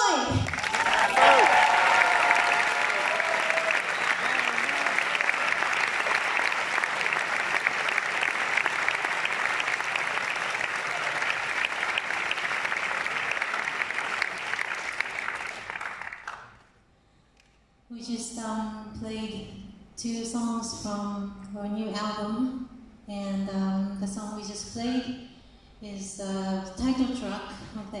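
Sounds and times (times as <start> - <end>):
audience applauding: 0.4 - 16.6.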